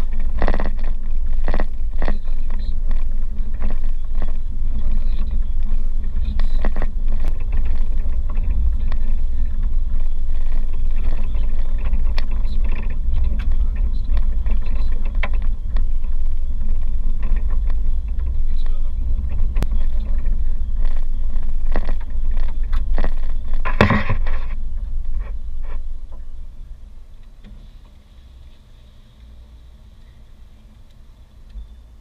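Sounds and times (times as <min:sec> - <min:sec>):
tyres and engine rumble: 0:00.0 - 0:32.0
short knocks and rattles: 0:06.2 - 0:26.3.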